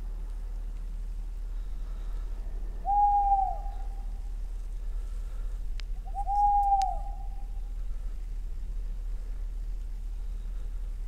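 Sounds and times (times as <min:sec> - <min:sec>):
faint sharp clicks: 0:00.2 - 0:00.9, 0:05.7 - 0:06.0, 0:06.6 - 0:07.0
owl hooting: 0:01.6 - 0:04.4, 0:06.0 - 0:08.0.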